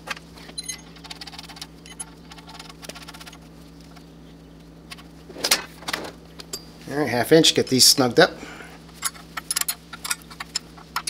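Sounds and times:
metal bolts clicking: 0:09.0 - 0:11.0.

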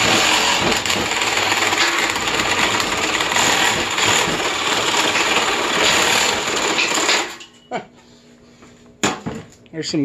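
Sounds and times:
reciprocating saw cutting metal: 0:00.0 - 0:07.4.

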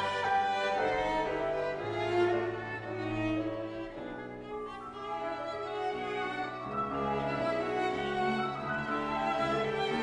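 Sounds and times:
cello: 0:00.0 - 0:10.0
violin: 0:00.0 - 0:10.0.

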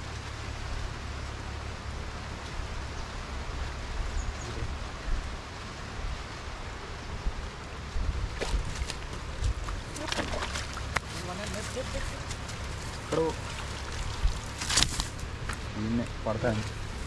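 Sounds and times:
wind on microphone: 0:04.0 - 0:10.0, 0:13.8 - 0:15.4.

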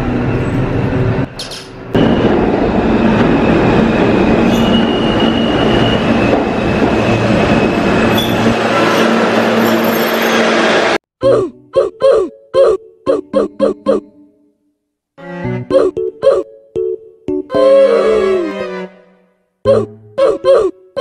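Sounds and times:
subway train rumbling: 0:00.0 - 0:11.0
high wheel squeal: 0:02.0 - 0:10.8.

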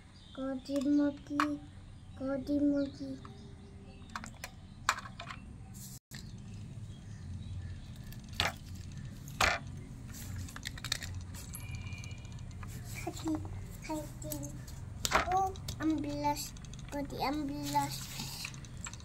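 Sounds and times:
plastic toy clicks and taps: 0:14.3 - 0:19.0.

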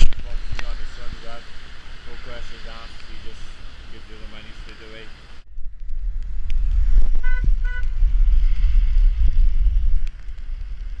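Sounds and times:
wind buffeting microphone: 0:05.3 - 0:11.0
short horn toots: 0:07.2 - 0:08.0.

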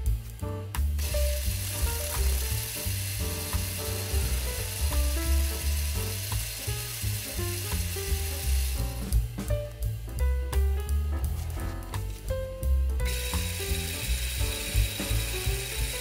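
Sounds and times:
background music with bass line: 0:00.0 - 0:16.0
lathe cutting plastic hiss: 0:01.0 - 0:09.1, 0:13.1 - 0:16.0.

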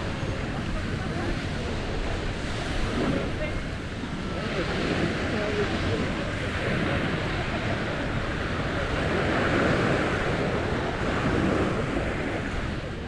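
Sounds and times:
surf washing onto beach: 0:00.0 - 0:13.0
wind buffeting microphone: 0:00.0 - 0:13.0.

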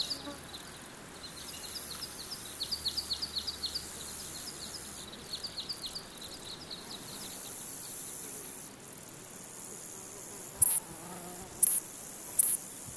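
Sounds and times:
high-pitched insect buzz: 0:00.0 - 0:00.7, 0:10.2 - 0:12.9
bird chirping: 0:00.0 - 0:08.2
steady high insect hiss: 0:00.0 - 0:12.9.

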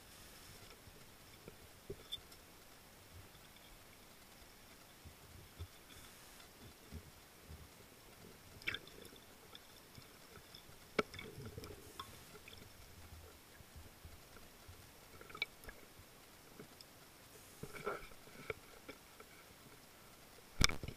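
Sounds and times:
sharp underwater clicks and knocks: 0:05.5 - 0:13.2, 0:20.6 - 0:20.9.

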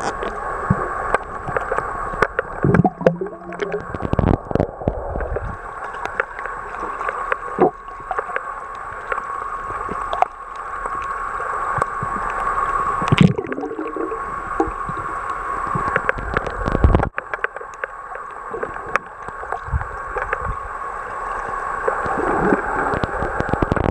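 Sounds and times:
underwater churning and gurgling: 0:00.0 - 0:23.9.

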